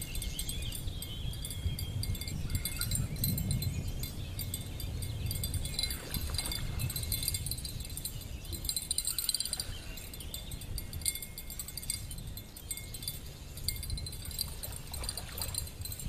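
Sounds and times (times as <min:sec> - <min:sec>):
high-pitched chirping trills: 0:00.0 - 0:16.0
wind buffeting microphone: 0:00.0 - 0:16.0.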